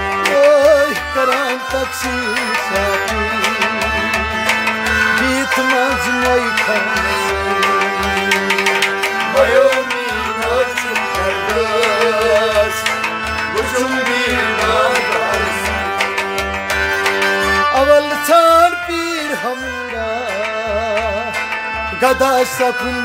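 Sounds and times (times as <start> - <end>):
hand drum rhythm: 0.0 - 18.1
harmonium playing: 0.0 - 23.0.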